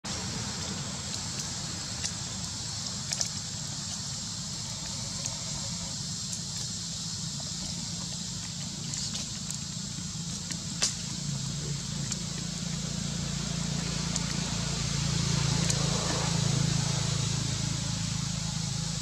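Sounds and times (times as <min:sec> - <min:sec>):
high-pitched insect drone: 0:03.4 - 0:19.0
sharp clicks of twigs: 0:10.4 - 0:11.3.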